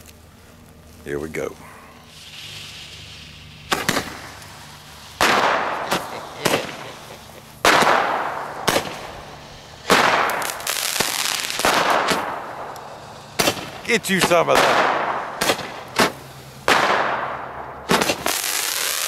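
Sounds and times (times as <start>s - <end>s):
firework hiss: 2.0s - 19.0s.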